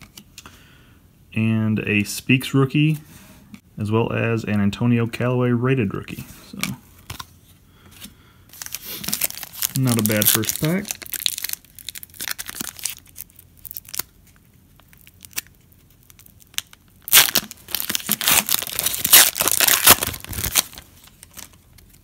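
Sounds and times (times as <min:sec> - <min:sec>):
foil wrapper crinkling: 0:08.5 - 0:22.0
foil wrapper tearing: 0:08.6 - 0:21.6.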